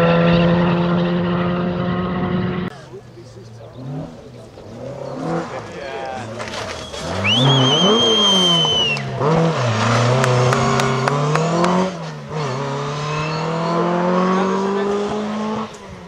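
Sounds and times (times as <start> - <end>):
car engine revving hard: 0.0 - 16.0
tyres squealing: 2.7 - 10.0.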